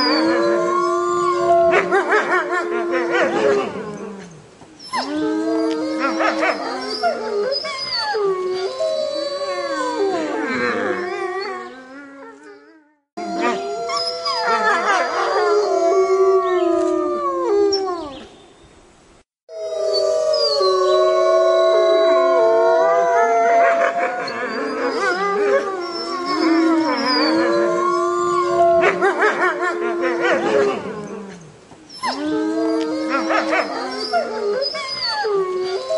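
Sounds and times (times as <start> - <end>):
wolves howling in chorus: 0.0 - 4.0, 13.2 - 17.2, 19.6 - 31.4, 32.1 - 35.9.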